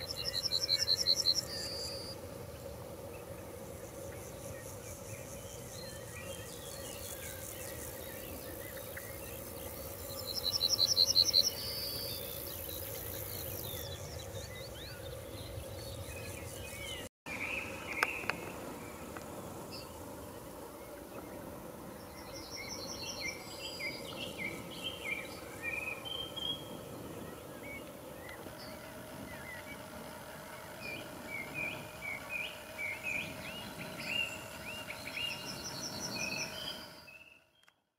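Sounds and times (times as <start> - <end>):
bird chirps: 0.0 - 2.2
high insect hiss: 0.0 - 37.4.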